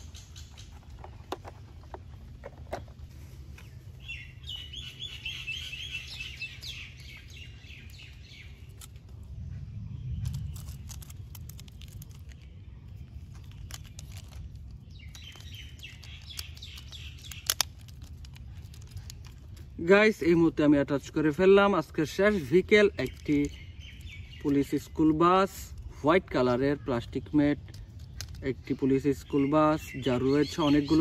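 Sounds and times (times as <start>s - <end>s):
small birds chirping: 0.0s - 31.0s
low rumble: 1.6s - 15.8s
plastic toys clicking: 15.1s - 19.6s.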